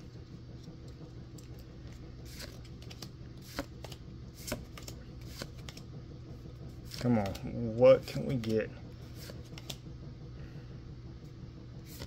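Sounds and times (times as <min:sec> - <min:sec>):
trading cards flicking: 0:02.2 - 0:05.9, 0:09.1 - 0:09.8.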